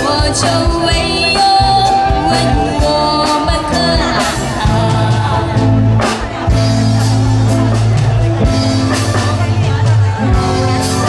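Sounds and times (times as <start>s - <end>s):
female vocal duo singing: 0.0s - 5.7s
live band playing: 0.0s - 11.0s
steady drum beat: 0.0s - 11.0s.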